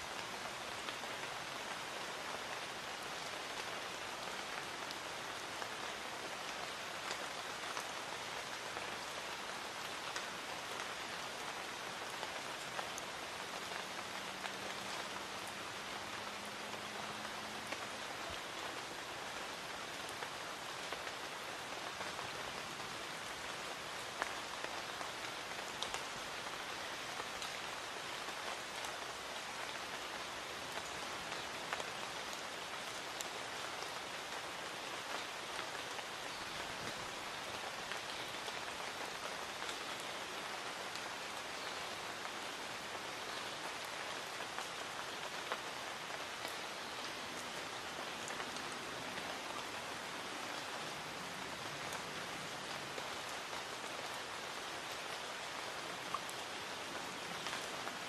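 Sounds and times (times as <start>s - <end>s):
raindrops ticking on surfaces: 0.0s - 58.0s.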